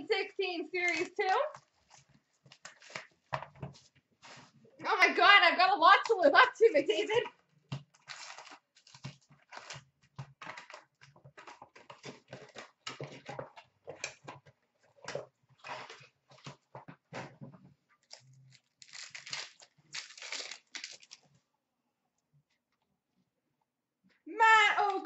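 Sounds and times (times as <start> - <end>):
plastic and foil crinkling: 0.2 - 4.6, 7.8 - 16.7, 18.0 - 21.4.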